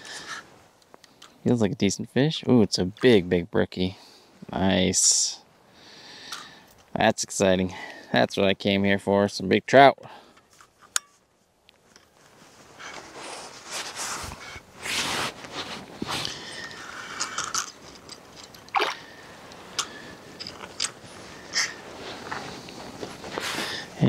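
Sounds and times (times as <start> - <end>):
jacket and gloves rustling: 10.4 - 24.0.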